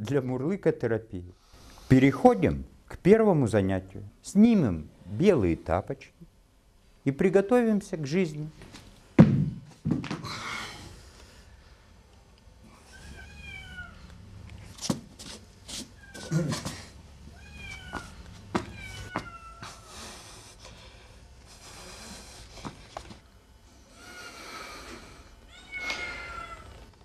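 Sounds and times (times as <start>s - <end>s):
kitten meowing: 12.9s - 14.0s, 17.3s - 19.7s, 25.5s - 26.7s.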